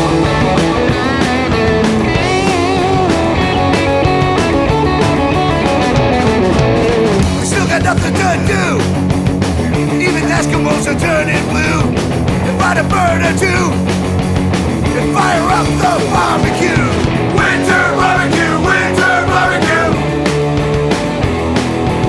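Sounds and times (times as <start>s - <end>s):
electric guitar bending notes: 0.0s - 10.0s
bass guitar: 0.0s - 22.0s
drums: 0.0s - 22.0s.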